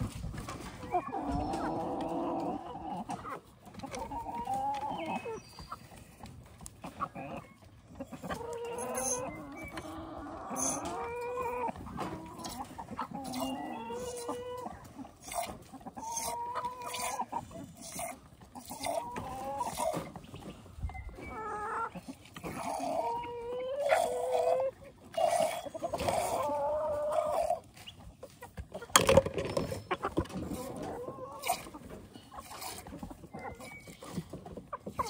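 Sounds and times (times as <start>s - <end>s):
farm animal calls: 0.0s - 35.0s.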